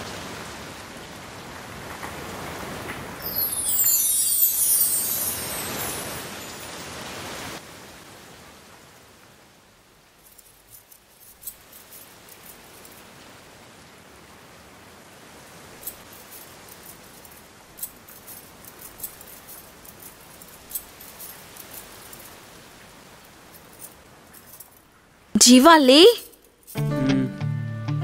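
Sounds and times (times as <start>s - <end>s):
metallic clinking and jingling: 3.2s - 6.8s, 10.2s - 13.1s, 15.8s - 24.9s
steady hiss: 3.2s - 8.0s, 8.6s - 25.3s.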